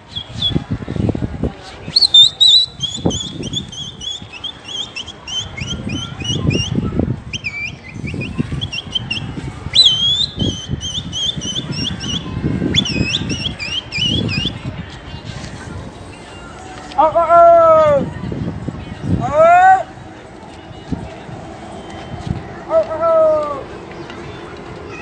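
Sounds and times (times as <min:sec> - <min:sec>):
sharp human whistles: 0:01.9 - 0:14.6.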